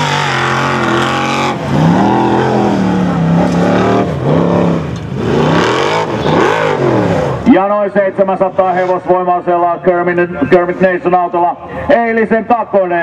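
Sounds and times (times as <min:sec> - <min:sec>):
buggy engine revving hard: 0:00.0 - 0:07.5.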